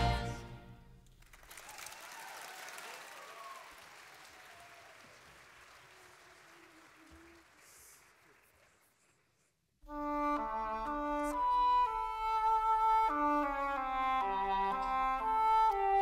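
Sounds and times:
audience applauding: 1.1 - 9.5.

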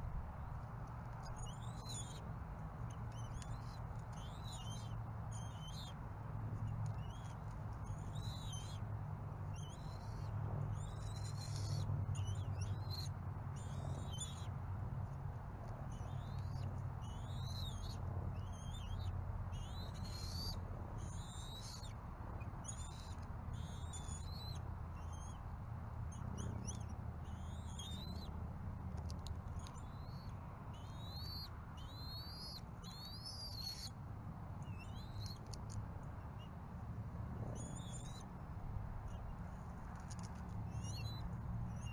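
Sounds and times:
steady low hum: 0.0 - 41.9
birds chirping and whistling: 30.8 - 33.9.

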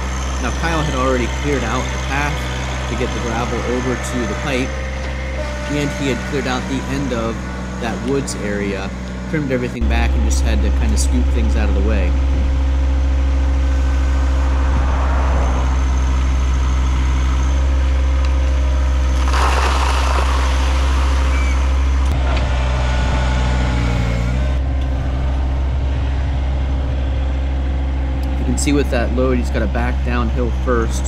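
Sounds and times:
tractor diesel engine running: 0.0 - 31.0
burst of noise: 19.1 - 21.8.

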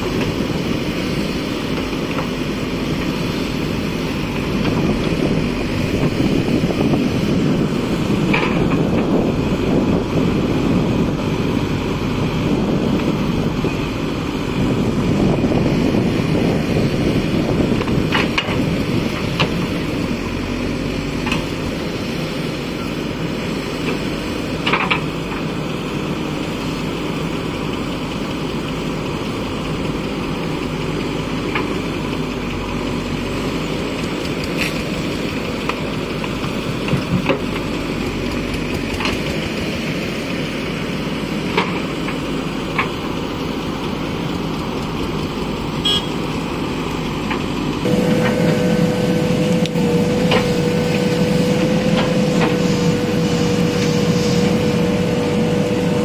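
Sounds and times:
diesel engine running: 0.0 - 56.0
steady high whine: 37.8 - 56.0.

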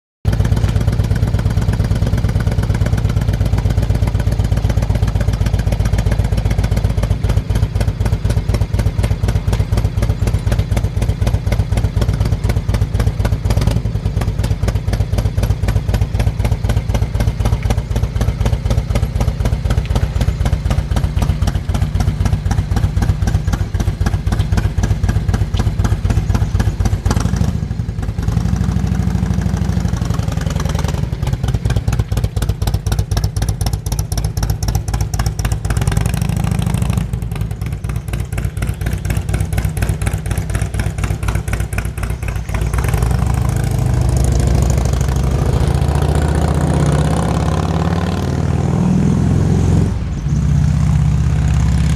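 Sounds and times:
motorcycle engine idling: 0.3 - 47.9.

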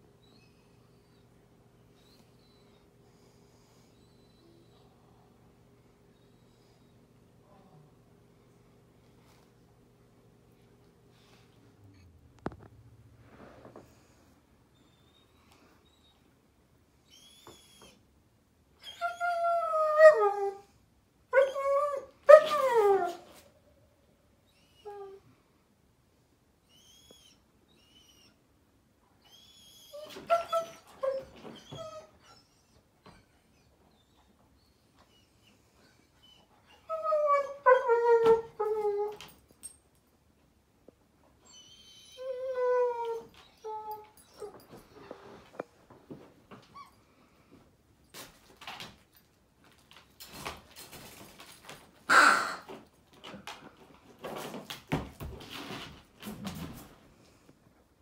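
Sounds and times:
puppy whining: 0.1 - 3.1, 3.7 - 5.1, 17.0 - 18.0, 18.8 - 20.7, 21.3 - 23.5, 24.4 - 25.3, 26.6 - 28.4, 29.2 - 39.4, 41.4 - 45.7, 46.5 - 47.4.

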